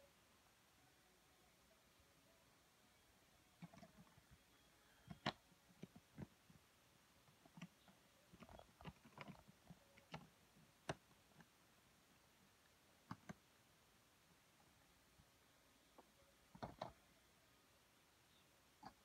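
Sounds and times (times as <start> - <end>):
faint clicks and taps: 5.0 - 6.6, 7.2 - 11.6, 12.6 - 13.5, 15.9 - 17.0.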